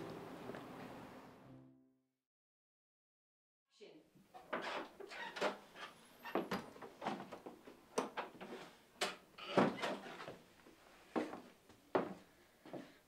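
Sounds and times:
footsteps: 0:10.2 - 0:13.0.

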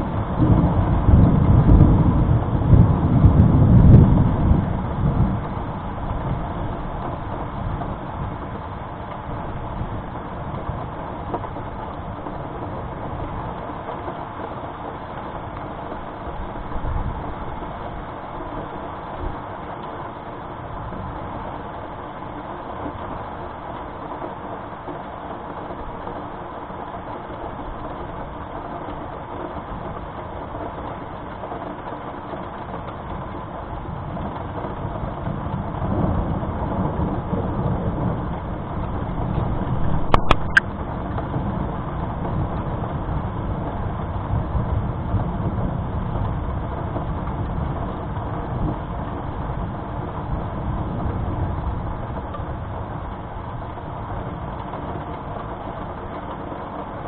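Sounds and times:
thunder rumbling: 0:00.0 - 0:23.6, 0:27.3 - 0:57.0
steady rain: 0:00.0 - 0:57.0
sharp clicks: 0:40.1 - 0:40.6.

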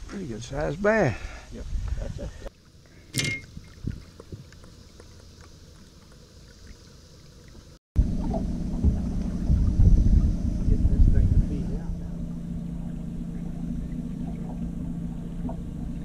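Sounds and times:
wind on microphone: 0:01.6 - 0:02.5, 0:03.2 - 0:04.5, 0:08.0 - 0:16.0
outboard motor running: 0:08.0 - 0:16.0.

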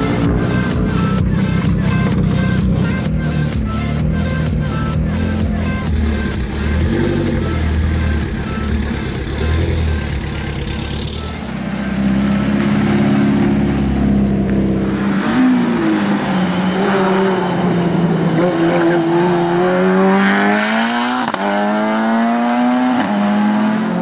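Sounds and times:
car engine running steadily: 0:00.0 - 0:15.1
car engine accelerating hard: 0:04.8 - 0:24.0.

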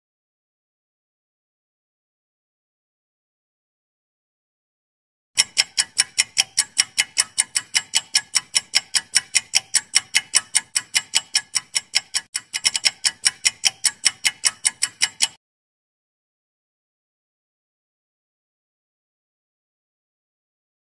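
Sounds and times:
fast clock ticking: 0:05.4 - 0:15.4.

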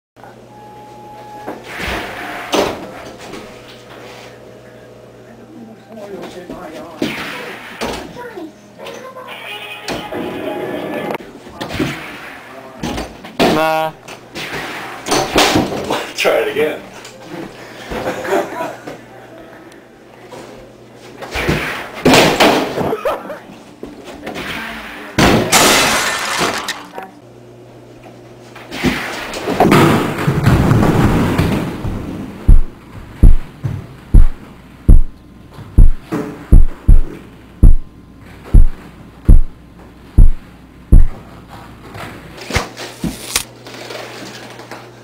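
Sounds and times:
deep booming thumps: 0:31.9 - 0:33.5, 0:34.1 - 0:35.1, 0:35.8 - 0:37.9, 0:38.5 - 0:39.6, 0:40.2 - 0:41.2.

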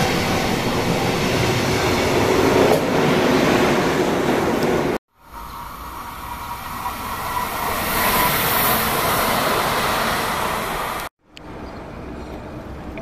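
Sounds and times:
tram rolling past on track: 0:00.0 - 0:12.8
high whine: 0:05.2 - 0:11.1.

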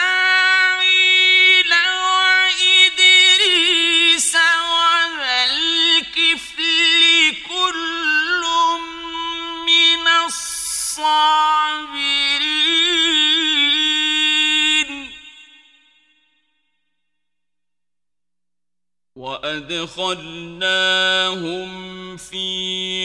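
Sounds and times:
man chanting recitation: 0:00.0 - 0:15.3, 0:19.2 - 0:23.0.

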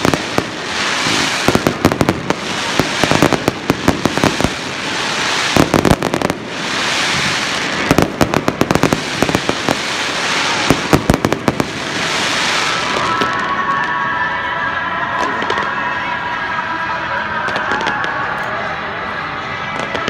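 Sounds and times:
fireworks crackling bangs: 0:00.0 - 0:14.2, 0:15.1 - 0:15.9, 0:19.6 - 0:20.0
fireworks hissing rush: 0:00.0 - 0:14.2.

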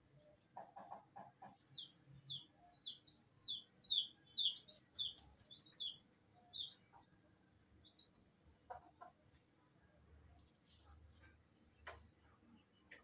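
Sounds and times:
chick clucking and peeping: 0:00.2 - 0:07.2, 0:07.8 - 0:09.3.

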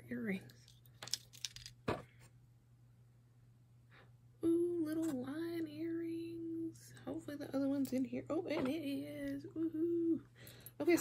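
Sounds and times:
woman humming: 0:04.4 - 0:06.8, 0:08.8 - 0:10.3.

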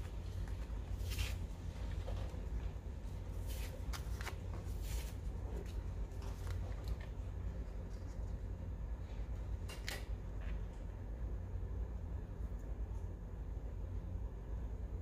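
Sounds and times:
low background hum: 0:00.0 - 0:15.0
paper rustling and sliding: 0:00.3 - 0:02.4, 0:03.3 - 0:07.1.

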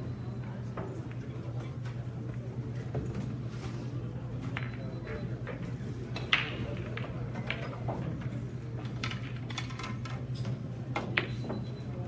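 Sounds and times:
billiard balls clicking: 0:04.5 - 0:11.6.

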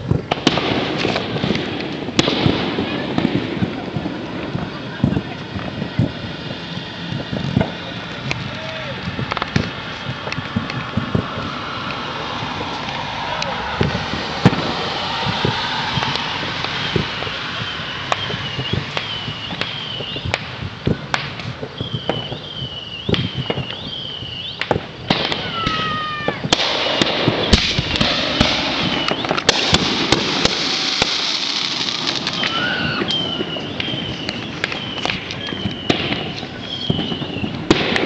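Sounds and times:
falling firework whistles: 0:00.0 - 0:38.0
fireworks bangs and pops: 0:00.0 - 0:38.0
high rising and dropping chirp: 0:12.0 - 0:20.3.

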